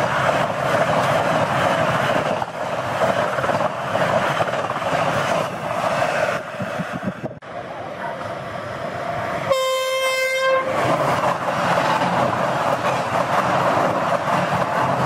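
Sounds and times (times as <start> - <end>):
train wheel and rail noise: 0.0 - 15.0
train horn: 9.5 - 10.8.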